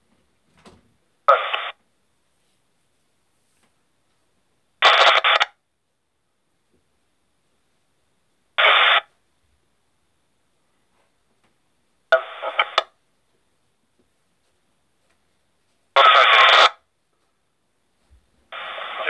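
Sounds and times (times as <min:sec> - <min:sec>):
radio transmission bursts: 0:01.3 - 0:01.8, 0:04.8 - 0:05.6, 0:08.6 - 0:09.1, 0:12.1 - 0:13.0, 0:16.0 - 0:16.9, 0:18.5 - 0:19.0.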